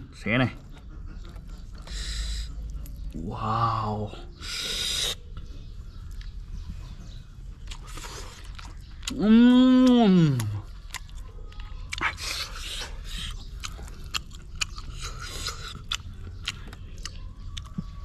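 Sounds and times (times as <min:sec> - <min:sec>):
person chewing fish: 0:07.3 - 0:18.0.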